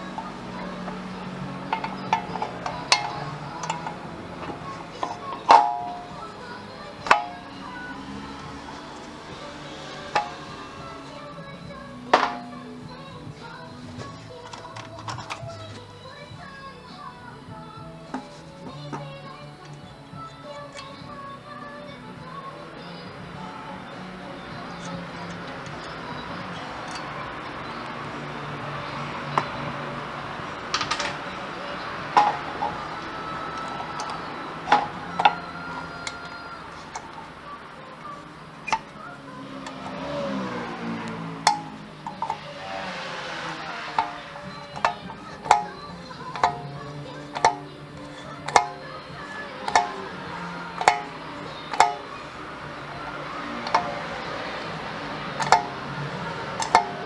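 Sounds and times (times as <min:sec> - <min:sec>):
hand tools clicking and tapping: 0:00.0 - 0:15.9, 0:17.8 - 0:21.1, 0:23.3 - 0:57.0
steady background hum: 0:00.0 - 0:57.0
kickstarter metallic clack: 0:05.0 - 0:06.2.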